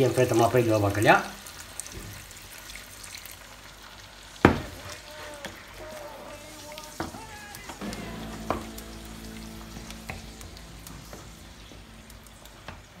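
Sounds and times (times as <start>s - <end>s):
broth sizzling in a pan: 0.0s - 13.0s
low hum: 7.8s - 13.0s.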